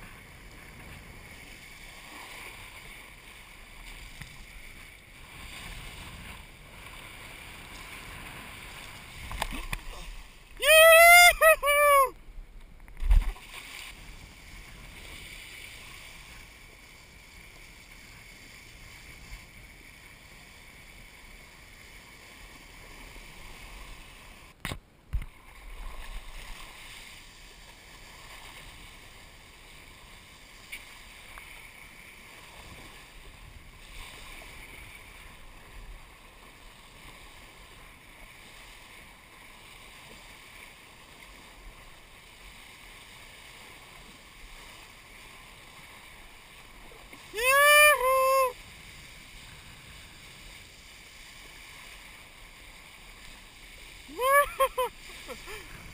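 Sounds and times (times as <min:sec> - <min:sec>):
water rushing under board: 0:00.0 - 0:19.6, 0:25.1 - 0:55.9.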